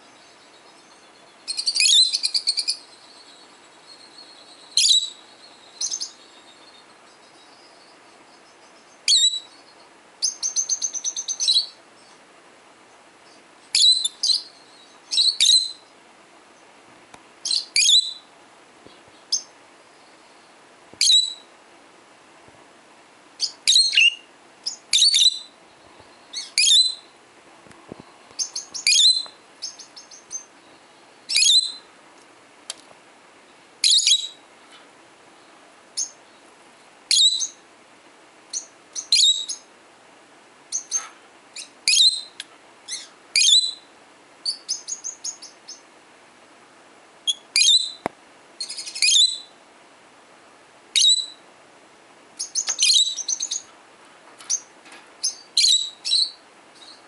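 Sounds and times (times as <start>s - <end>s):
soft bird twittering: 0.0s - 12.2s, 13.2s - 15.9s, 23.4s - 27.1s, 28.4s - 31.9s, 47.3s - 48.0s, 48.6s - 49.5s, 52.4s - 53.7s, 54.4s - 57.0s
birds chirping: 0.0s - 16.8s, 17.4s - 21.5s, 23.4s - 27.2s, 27.9s - 31.9s, 33.4s - 37.6s, 38.5s - 39.8s, 40.7s - 45.9s, 47.3s - 48.0s, 48.6s - 49.6s, 51.0s - 51.4s, 52.4s - 53.8s, 54.4s - 57.0s.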